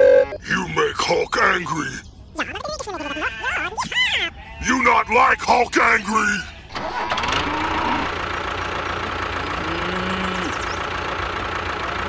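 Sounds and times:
tractor engine idling: 5.7 - 12.0.

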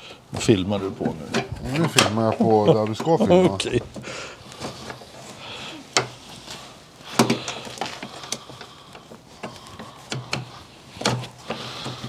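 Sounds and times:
hands clicking plastic trim: 7.2 - 12.0.

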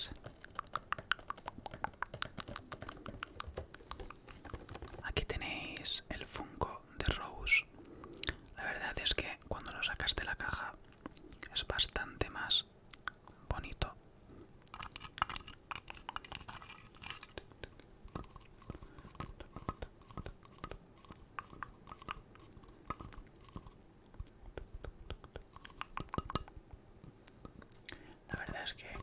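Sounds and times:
fingers tapping on vinyl: 0.0 - 5.3, 24.2 - 26.8.

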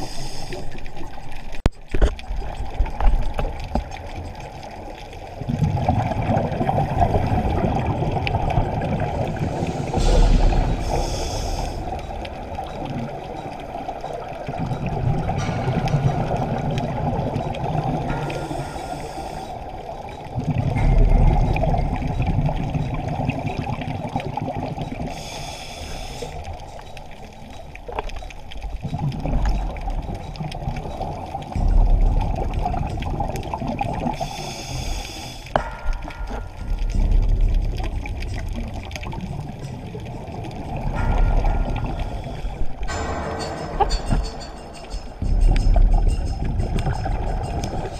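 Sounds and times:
diver breathing through regulator: 0.0 - 0.8, 9.4 - 12.2, 18.2 - 19.7, 25.1 - 26.9, 34.1 - 35.6
exhaled bubbles gushing: 0.8 - 25.3, 26.5 - 34.3, 35.6 - 43.0.

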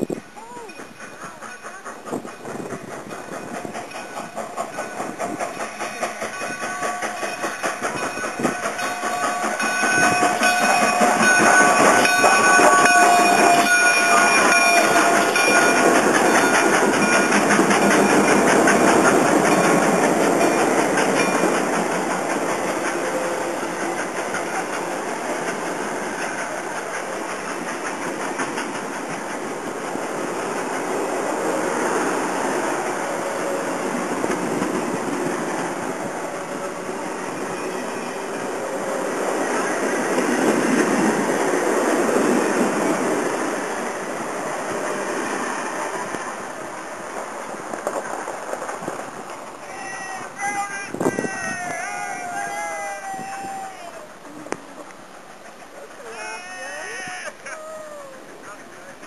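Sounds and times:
train wheels clacking on rail joints: 0.0 - 52.5
steam locomotive passing: 0.0 - 59.0
steady high tones: 3.4 - 25.0.

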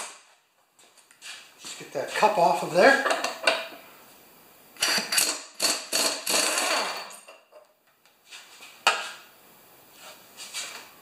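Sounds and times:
pneumatic impact wrench hammering: 4.8 - 7.0.

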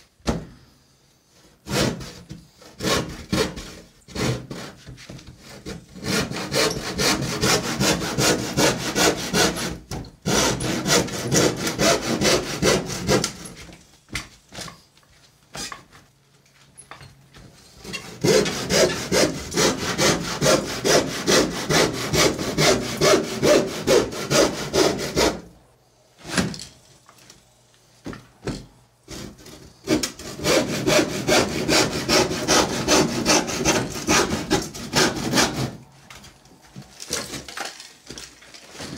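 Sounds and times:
hand saw cutting wood: 1.3 - 13.7, 17.6 - 25.5, 29.1 - 36.0.

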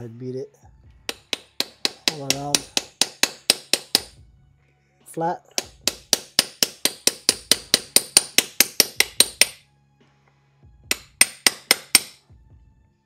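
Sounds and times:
hammer tapping metal: 1.1 - 4.2, 5.5 - 9.6, 10.9 - 12.2.

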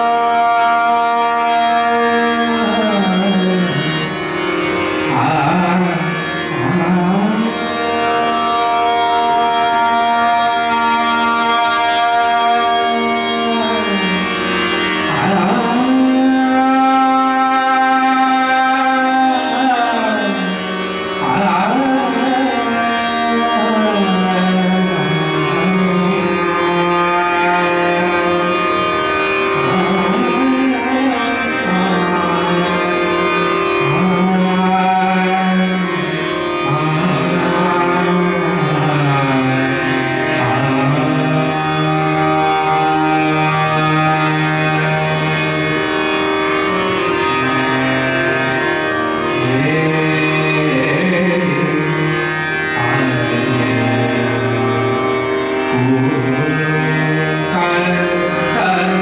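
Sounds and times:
steady drone: 0.0 - 59.0
sliding melody: 19.1 - 59.0.

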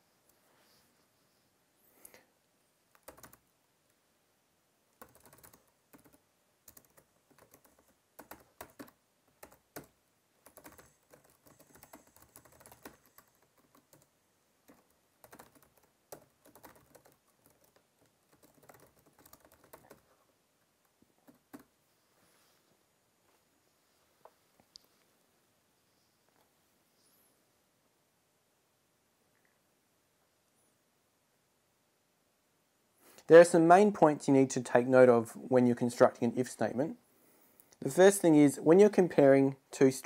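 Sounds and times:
faint keyboard typing: 2.9 - 4.0, 4.9 - 21.8.

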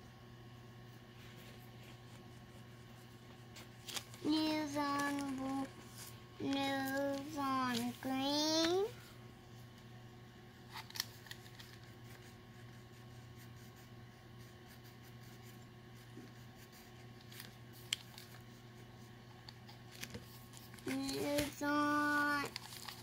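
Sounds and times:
low room hum: 0.0 - 23.0
wax crayon rubbing on paper: 12.0 - 17.2.

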